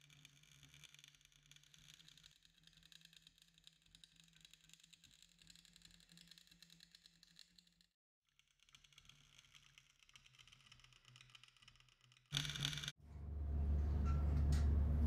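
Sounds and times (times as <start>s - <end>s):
low steady hum: 13.0s - 15.0s.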